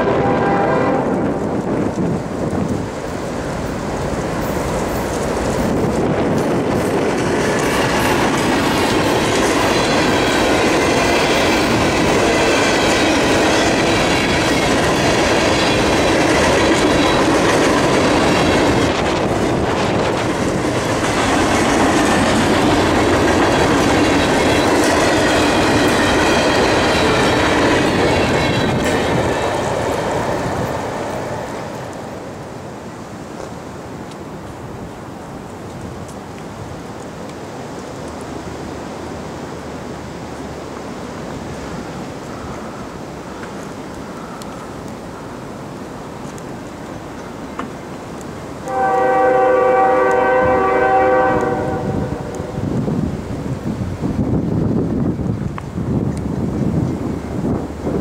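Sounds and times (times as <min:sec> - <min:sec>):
train rumbling: 0:00.0 - 0:58.0
wheels clacking over rail joints: 0:00.9 - 0:34.6.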